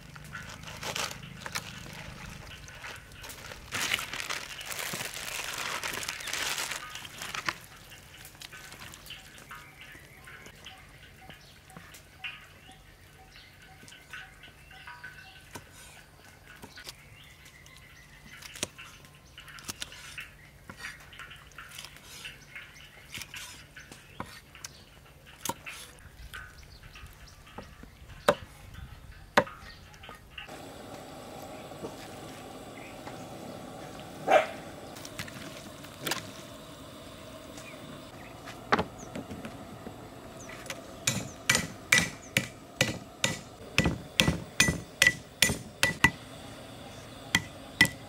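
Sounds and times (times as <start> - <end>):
cleaver chopping on wooden block: 41.1 - 46.2.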